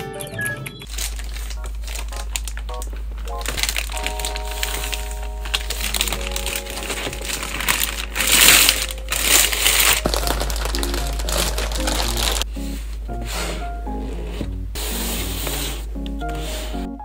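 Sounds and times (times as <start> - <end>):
background music: 0.0 - 0.8, 1.6 - 17.0
plastic wrapping crinkling: 0.9 - 12.5.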